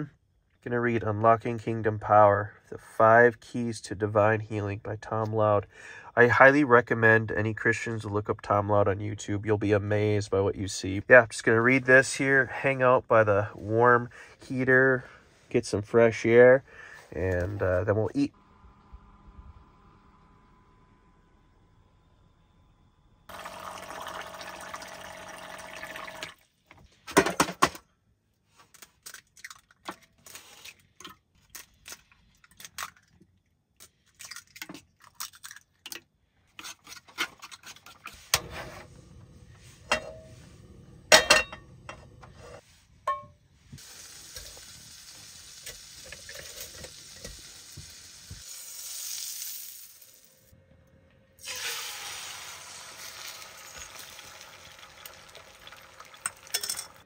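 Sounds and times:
dishes and utensils clinking: 41.1s - 42.1s, 56.2s - 57.0s
steady hiss: 43.6s - 50.4s.

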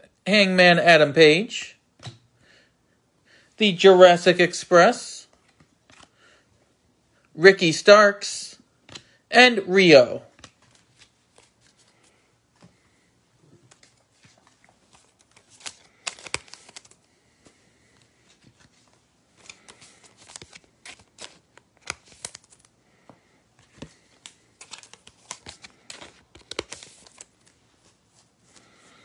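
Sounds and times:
cards and foil wrapper crinkling: 13.7s - 17.4s, 18.2s - 22.8s, 23.6s - 27.6s.

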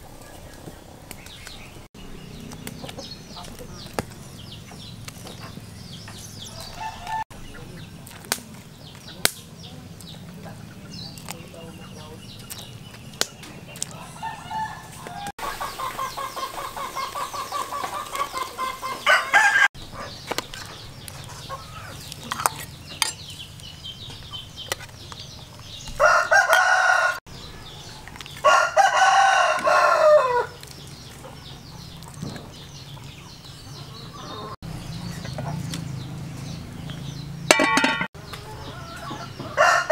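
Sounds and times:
chickens clucking: 0.0s - 39.9s
rooster crowing: 6.4s - 7.3s, 13.9s - 17.3s, 18.7s - 19.7s, 26.0s - 27.2s, 28.4s - 30.6s, 38.3s - 39.9s.

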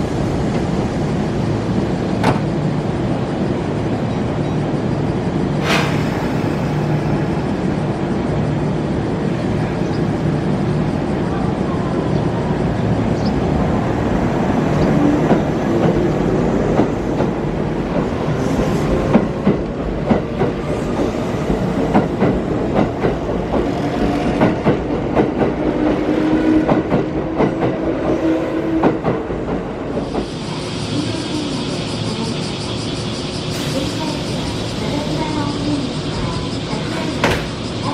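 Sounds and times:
train wheels clicking over rail joints: 14.7s - 28.2s.

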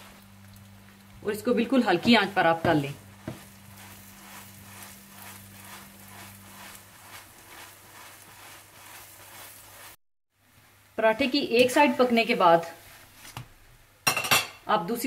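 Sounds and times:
flatbread sizzling in butter: 0.0s - 10.0s.

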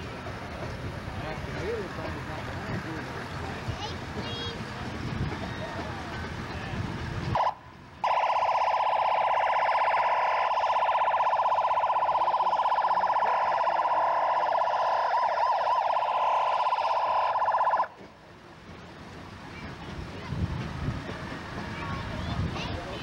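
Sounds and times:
emergency vehicle siren pulsing: 7.3s - 18.0s.

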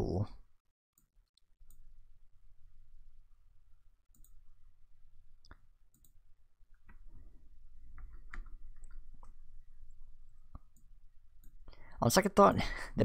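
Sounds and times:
computer mouse clicking: 4.1s - 4.4s, 5.4s - 7.1s, 7.9s - 11.6s.

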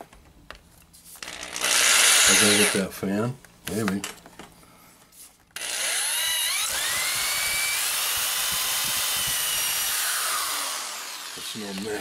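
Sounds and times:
power drill whining: 1.2s - 2.9s, 5.6s - 12.0s.

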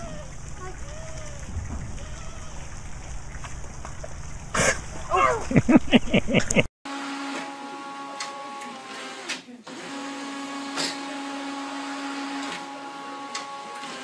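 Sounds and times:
printer motor whirring: 6.9s - 14.0s.

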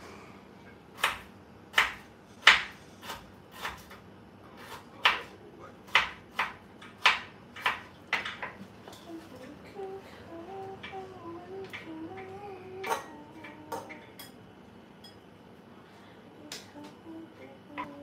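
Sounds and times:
knife chopping on cutting board: 1.0s - 4.0s, 4.6s - 5.3s, 5.9s - 8.4s.

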